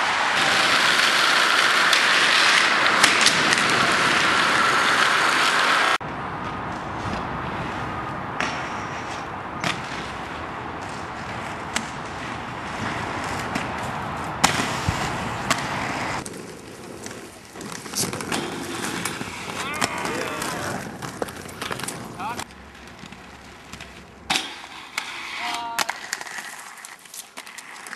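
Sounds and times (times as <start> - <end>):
skate wheels rolling over pavement: 0.0 - 27.9
skates clacking on rails and ledges: 0.0 - 27.9.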